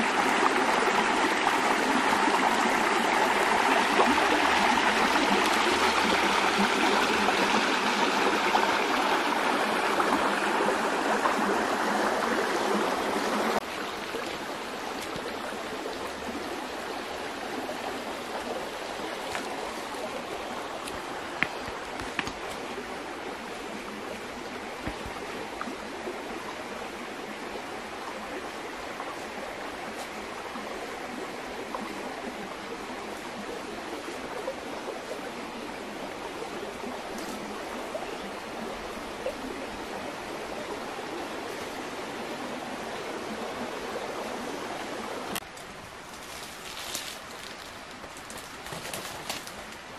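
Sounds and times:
stream running over stones: 0.0 - 49.9.

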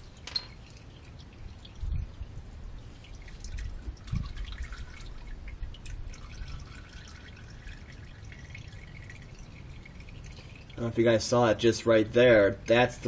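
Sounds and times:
oil dripping into plastic pan: 2.8 - 10.9.

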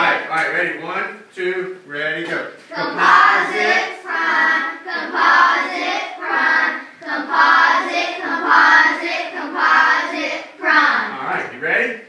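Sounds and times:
children and teacher chanting: 2.7 - 11.3.

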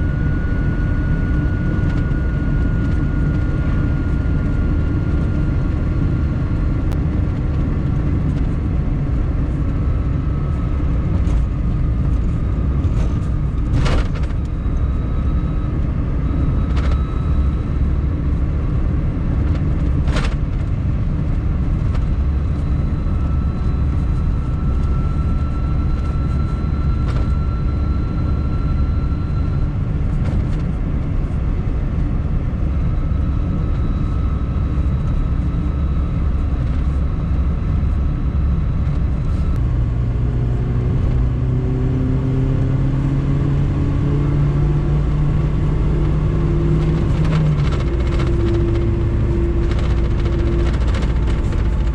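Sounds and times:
faint high whine: 0.0 - 51.9
road rumble inside car: 0.0 - 51.9
car engine accelerating: 39.6 - 51.9.

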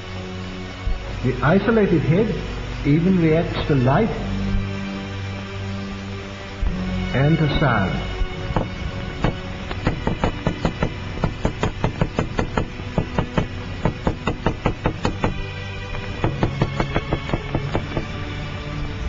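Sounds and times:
background music: 0.0 - 19.0
hammer tapping on hard surface: 8.5 - 15.4, 16.2 - 18.1.

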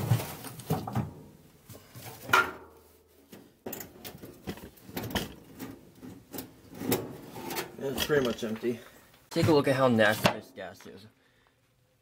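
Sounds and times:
clunks and knocks of handling: 0.0 - 2.7, 3.3 - 8.7.

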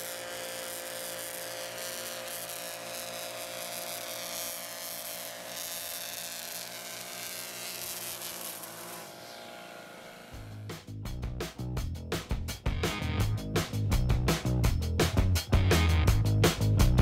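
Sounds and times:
string trimmer engine buzzing: 0.0 - 10.8.

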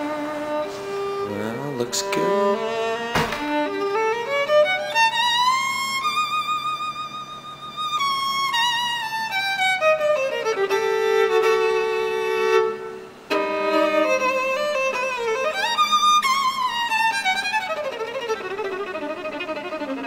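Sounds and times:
violin playing slow melody: 0.0 - 20.0.

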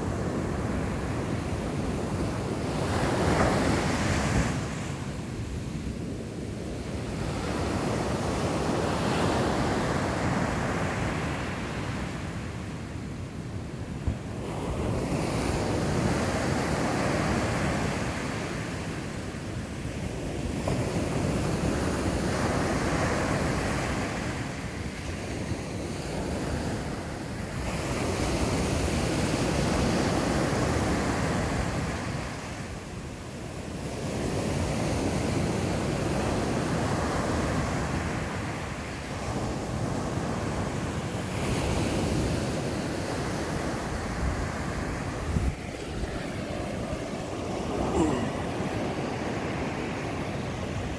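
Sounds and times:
surf breaking on beach and rocks: 34.2 - 50.9.

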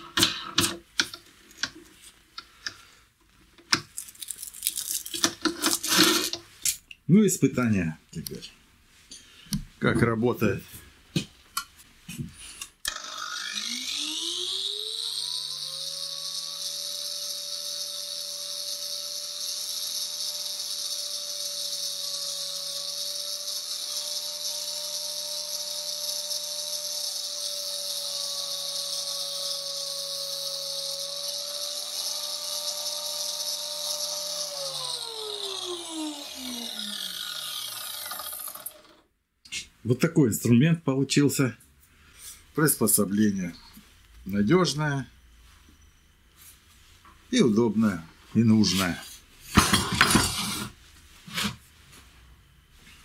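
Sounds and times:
angle grinder whining: 12.8 - 39.1, 49.5 - 50.7.

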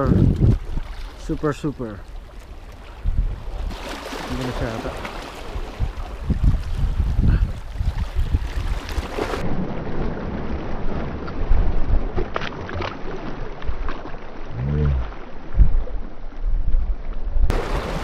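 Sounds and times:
wind buffeting the microphone: 0.0 - 1.2, 2.4 - 3.8, 4.4 - 9.5
water lapping at rocks: 0.0 - 9.5, 10.2 - 16.3, 17.5 - 18.0
fish splashing into water: 3.7 - 5.8.

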